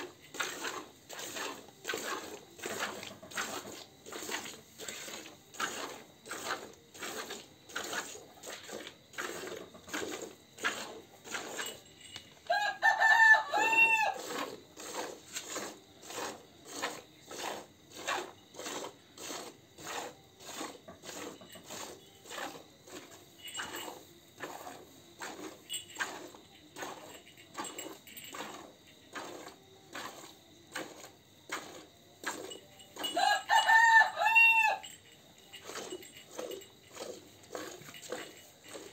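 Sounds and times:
rooster crowing: 0:12.4 - 0:14.3, 0:33.0 - 0:35.0.

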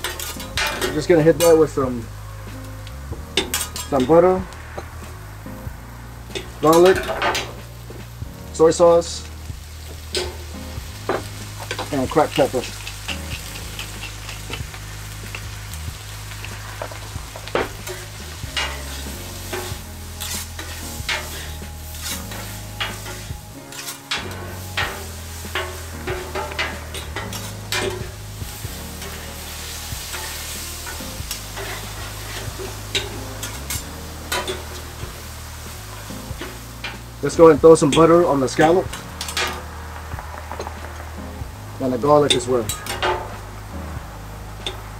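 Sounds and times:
metal spatula scraping griddle: 0:00.0 - 0:05.2, 0:06.3 - 0:08.1, 0:09.8 - 0:39.8, 0:40.4 - 0:43.5
food sizzling on griddle: 0:00.0 - 0:44.9.

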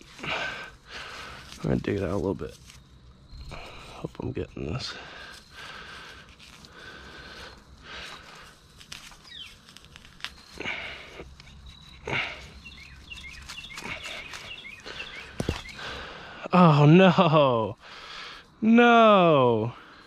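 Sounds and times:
hand scraping loose soil: 0:00.0 - 0:16.2
hand brushing through weeds: 0:05.3 - 0:15.8.

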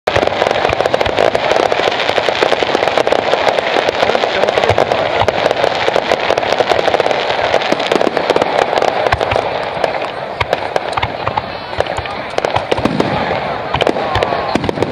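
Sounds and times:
fireworks crackling and banging: 0:00.0 - 0:14.9.

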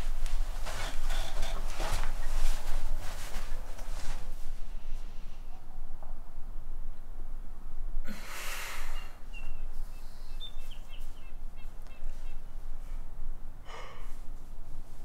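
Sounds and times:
woman gasping: 0:08.1 - 0:09.1, 0:13.6 - 0:14.2.

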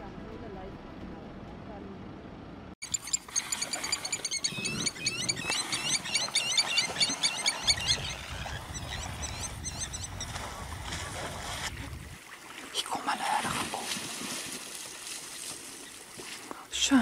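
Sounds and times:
small birds chirping: 0:02.8 - 0:10.4.

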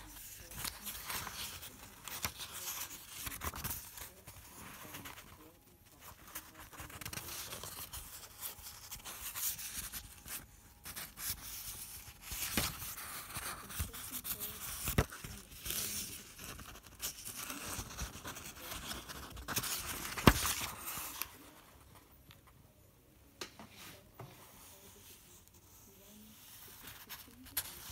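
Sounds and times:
paper rustling and crinkling: 0:00.0 - 0:22.4, 0:23.7 - 0:27.9.

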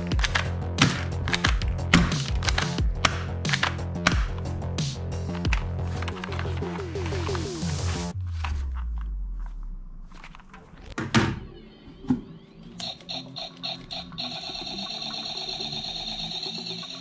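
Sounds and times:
plastic toys knocking in box: 0:00.2 - 0:04.4
toy gun sound effects: 0:12.8 - 0:17.0.

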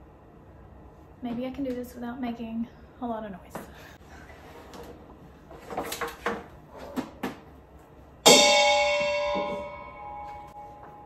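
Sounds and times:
loud metallic clang of pots: 0:08.2 - 0:10.6.

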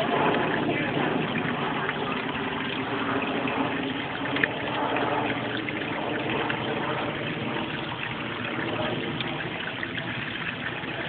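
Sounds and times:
creek water running over stones: 0:00.0 - 0:11.0.

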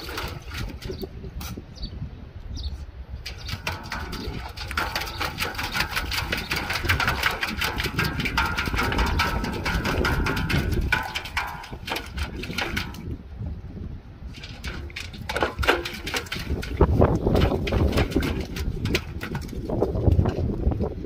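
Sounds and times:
puppy splashing water in bowl: 0:00.0 - 0:01.4, 0:03.2 - 0:13.3, 0:14.3 - 0:21.0
low wind rumble on microphone: 0:00.0 - 0:21.0.

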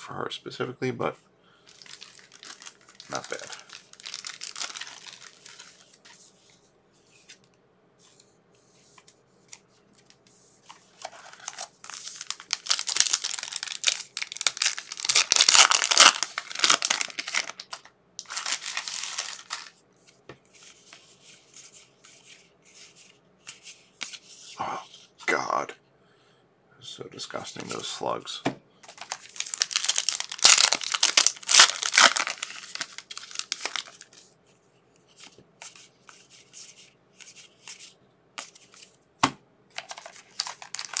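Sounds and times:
foil wrapper tearing and crinkling: 0:01.7 - 0:05.8, 0:11.2 - 0:19.8, 0:28.9 - 0:34.2, 0:39.8 - 0:41.0
card handling: 0:09.0 - 0:20.2, 0:28.8 - 0:34.2, 0:39.7 - 0:41.0.

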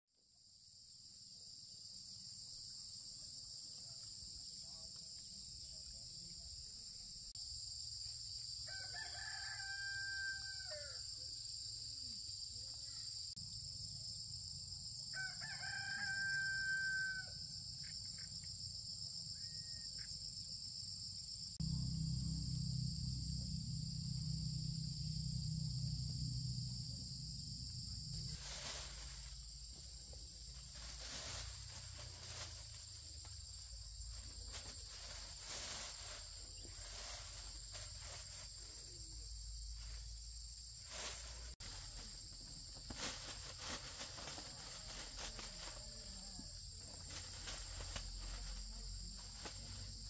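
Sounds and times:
rooster crowing: 0:08.6 - 0:11.3, 0:15.1 - 0:17.6
high-pitched insect drone: 0:08.6 - 0:50.0.

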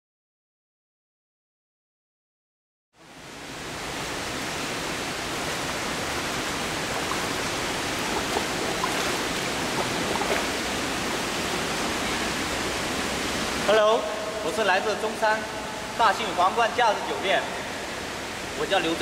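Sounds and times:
rushing water of a pool: 0:03.0 - 0:19.0
swimmer splashing: 0:04.1 - 0:14.5.

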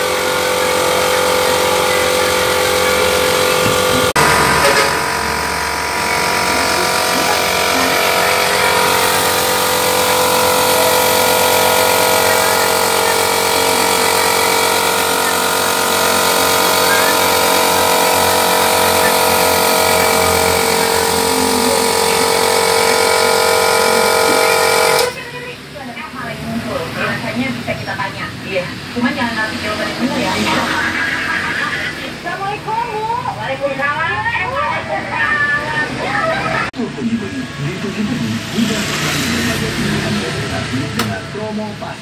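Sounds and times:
machine drone with whine: 0:00.0 - 0:42.0.

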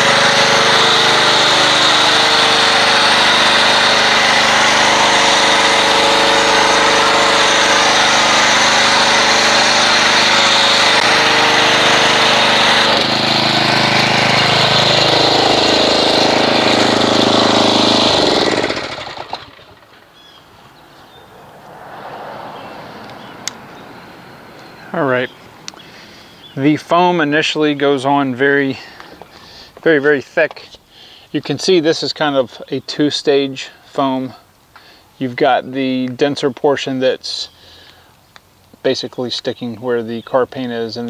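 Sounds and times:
pressure washer motor hum: 0:00.0 - 0:20.2.

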